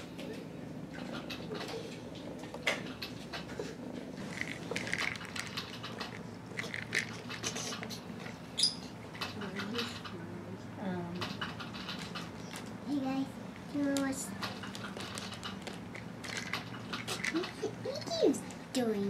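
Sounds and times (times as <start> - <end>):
treats rattling in plastic toy: 4.2 - 8.0, 13.6 - 18.6.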